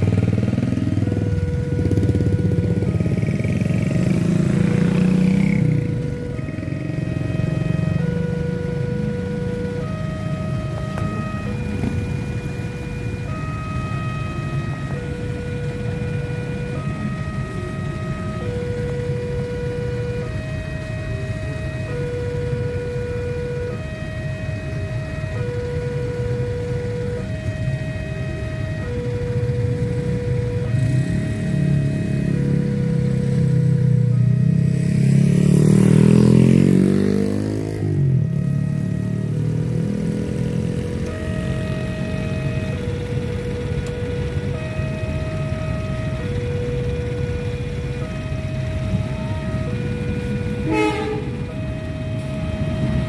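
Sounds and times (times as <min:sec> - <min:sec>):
small motorcycle engine passing: 0:00.0 - 0:08.4, 0:30.2 - 0:43.6
level crossing two-tone alarm: 0:00.0 - 0:53.0
motorcycles idling: 0:00.0 - 0:53.0.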